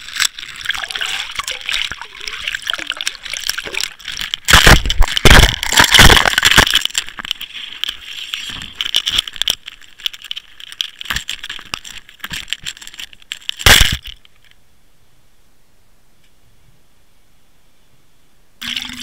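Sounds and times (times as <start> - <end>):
camera handling crackling: 0.0 - 8.0
faint steady hiss: 0.0 - 19.0.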